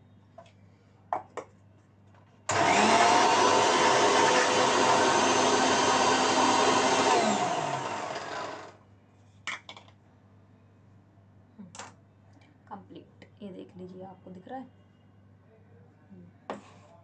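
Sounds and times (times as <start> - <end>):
mixer grinder running: 2.5 - 8.8.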